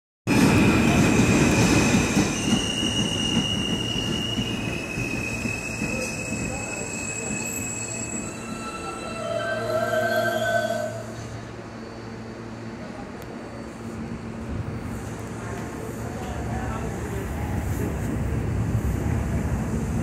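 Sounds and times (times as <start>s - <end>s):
train wheels rumbling on rails: 0.3s - 9.8s
low squeal: 0.4s - 12.6s
high squealing tones: 2.4s - 11.2s.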